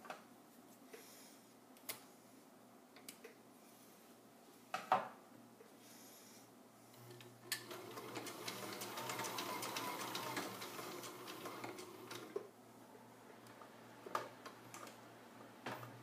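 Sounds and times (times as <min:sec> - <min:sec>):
sewing machine needle clatter: 0:07.5 - 0:12.4.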